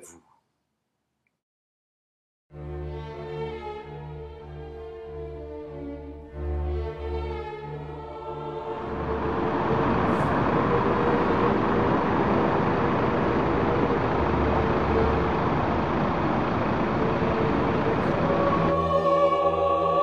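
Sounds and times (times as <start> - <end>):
cars driving on busy avenue: 8.8 - 18.8.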